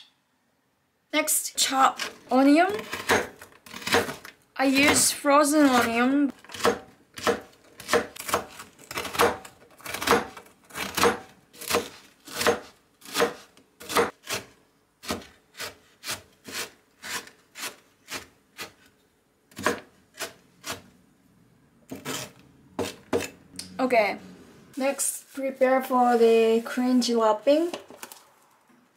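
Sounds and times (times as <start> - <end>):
knife chopping on wooden board: 2.7 - 4.2, 6.5 - 18.8, 19.5 - 20.8.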